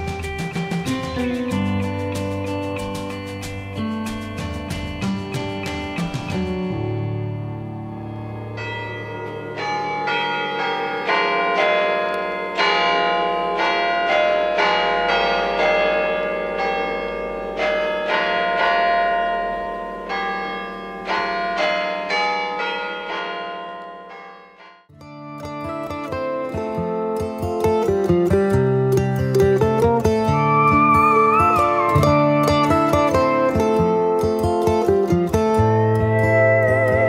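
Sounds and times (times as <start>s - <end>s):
bells ringing: 8.0s - 24.9s.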